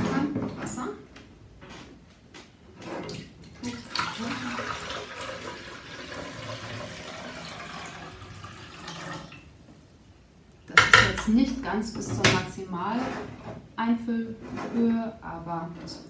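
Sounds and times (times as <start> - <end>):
water pouring into plastic tank: 3.1 - 9.5.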